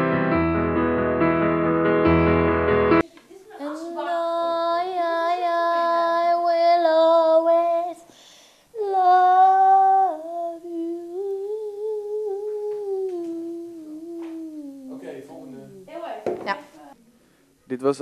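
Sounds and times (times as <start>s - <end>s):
person humming: 8.8s - 15.9s.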